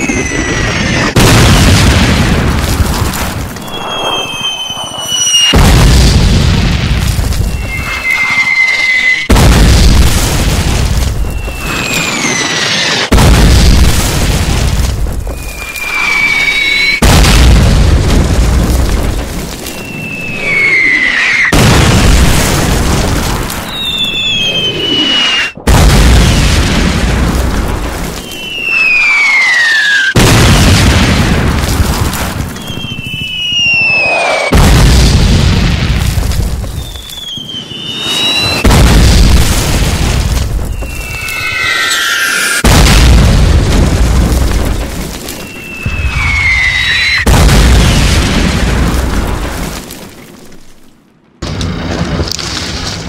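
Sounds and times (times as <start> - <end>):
falling shell whistle: 0.0 - 1.2, 3.6 - 5.7, 7.4 - 9.3, 11.2 - 13.1, 15.3 - 17.0, 19.7 - 21.6, 23.6 - 25.6, 28.2 - 30.2, 32.6 - 34.5, 36.7 - 38.7, 40.7 - 42.6, 45.3 - 47.3
artillery explosion booms: 0.0 - 50.7.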